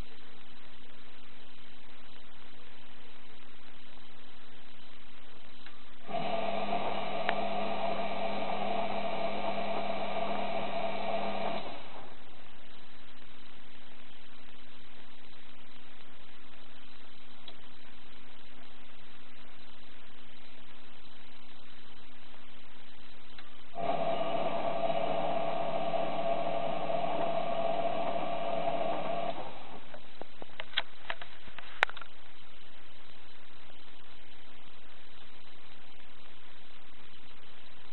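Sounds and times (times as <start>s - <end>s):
washing machine motor whine: 6.0s - 13.4s, 23.7s - 30.2s.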